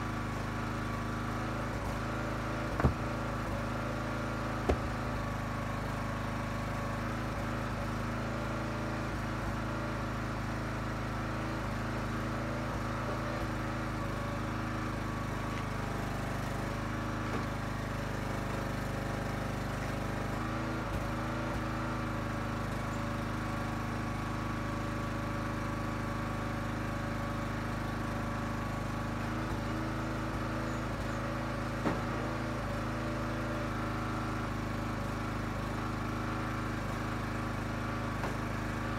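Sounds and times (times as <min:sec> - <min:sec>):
small gas engine running: 0:00.0 - 0:38.9
sharp knocks of wood blocks: 0:02.6 - 0:03.3, 0:04.6 - 0:05.2.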